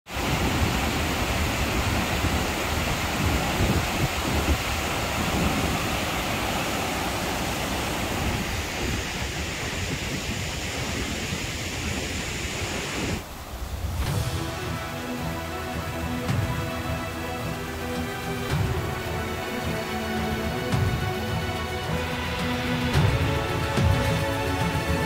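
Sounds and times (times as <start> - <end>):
wind on the microphone: 0.1 - 14.8
waterfall rushing: 0.1 - 25.0.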